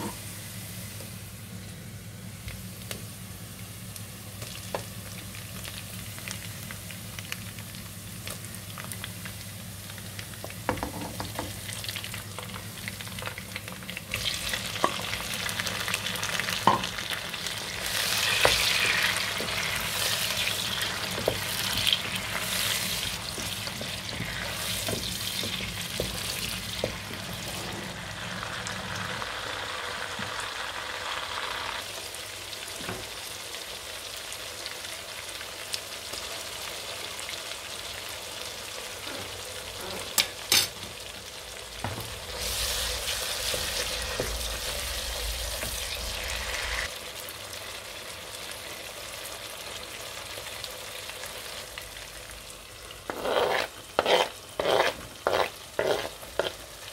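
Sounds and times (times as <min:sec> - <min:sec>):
vegetables sizzling in oil: 0:00.0 - 0:56.9
wooden spatula scraping pot: 0:53.1 - 0:56.6.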